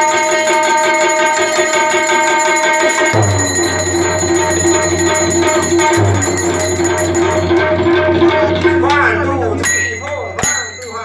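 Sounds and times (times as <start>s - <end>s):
tabla strokes: 0.0s - 10.8s
deep bass tone: 3.2s - 9.6s.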